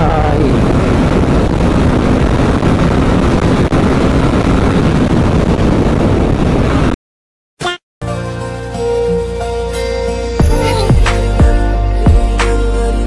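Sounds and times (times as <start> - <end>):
wind noise on microphone: 0.0 - 7.0.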